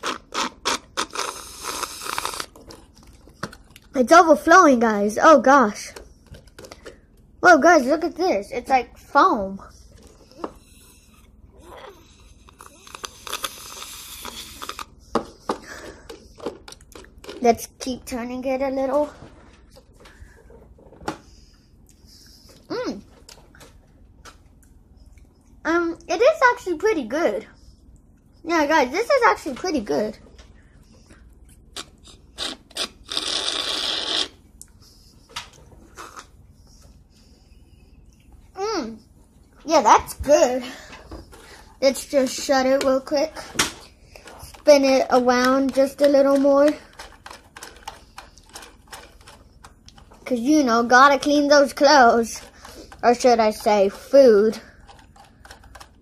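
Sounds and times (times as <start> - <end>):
short hissing: 0.4 - 2.5, 12.8 - 14.9, 32.4 - 34.4
hands clicking plastic toy: 44.4 - 50.2, 54.8 - 56.0.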